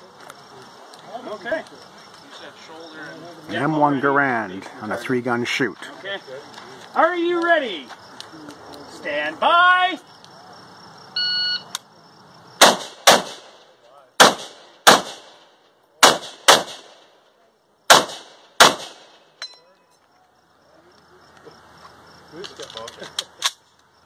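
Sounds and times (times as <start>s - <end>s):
rifle shots: 12.6s - 17.1s, 17.9s - 19.2s
metallic ping of ejected clip: 19.4s - 20.0s.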